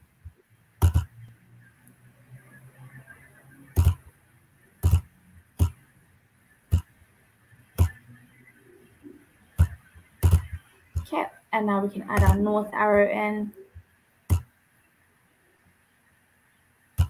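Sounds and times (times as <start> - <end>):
computer mouse clicks: 0.8 - 2.0, 3.7 - 4.1, 4.8 - 5.8, 7.8 - 8.1, 9.6 - 11.1, 12.2 - 12.4, 14.3 - 14.5.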